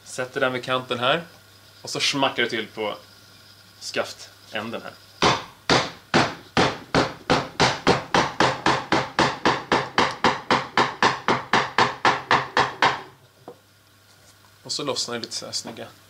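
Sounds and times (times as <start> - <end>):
wooden mallet striking gouge: 5.2 - 13.1.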